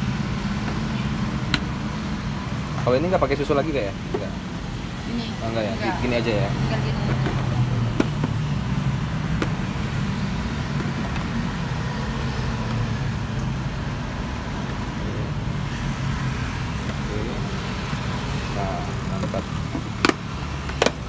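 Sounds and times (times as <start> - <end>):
low engine hum: 0.0 - 21.0
road traffic noise: 0.0 - 21.0.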